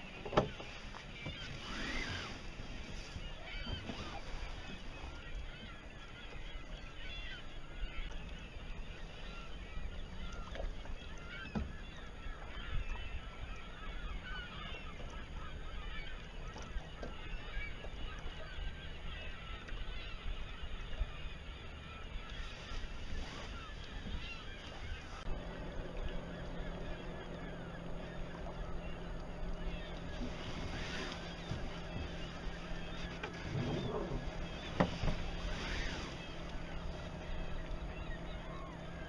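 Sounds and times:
water gurgling along boat hull: 0.0s - 39.0s
low wind rumble: 22.1s - 39.0s.

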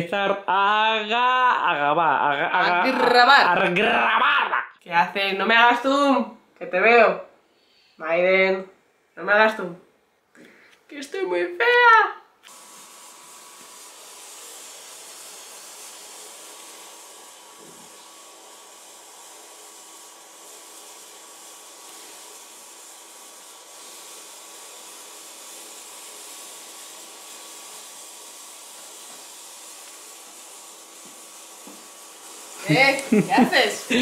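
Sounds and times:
steady hiss: 10.0s - 34.0s.

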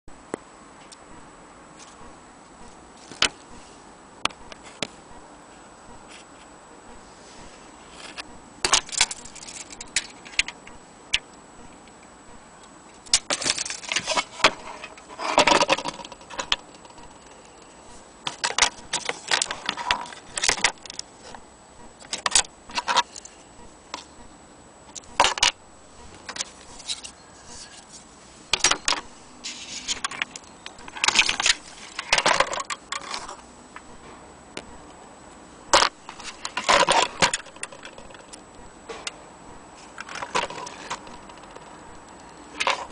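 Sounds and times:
clock parts clinking and rattling: 8.6s - 10.6s, 13.1s - 21.1s, 28.5s - 33.4s, 35.7s - 38.4s.

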